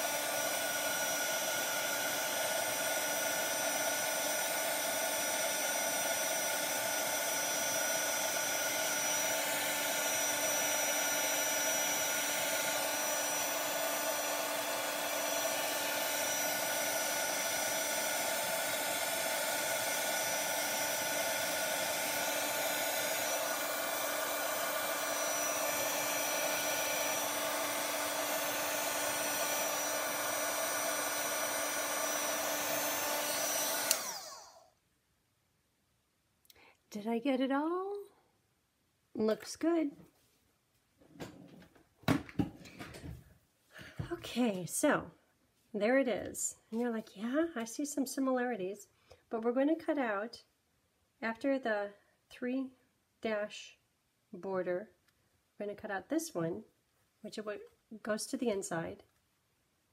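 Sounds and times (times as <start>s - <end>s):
heat tool blowing hot air: 0.0s - 34.6s.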